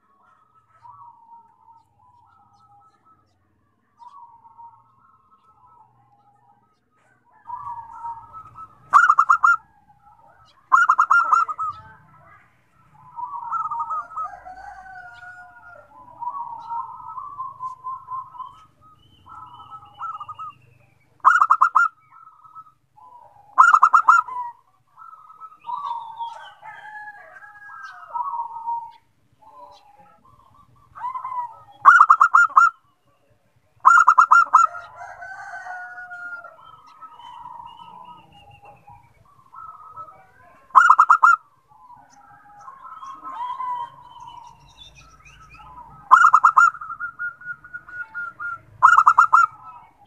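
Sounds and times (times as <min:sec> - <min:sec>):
doves cooing: 0:00.0 - 0:50.0.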